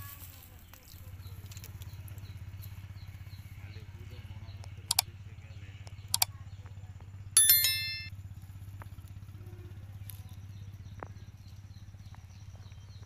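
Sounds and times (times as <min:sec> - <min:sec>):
metallic ding: 0:07.4 - 0:08.1.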